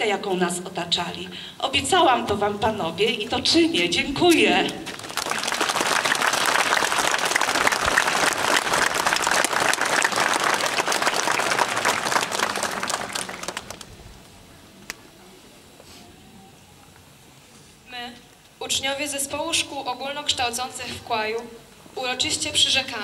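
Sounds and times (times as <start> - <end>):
crowd applauding: 4.6 - 14.3.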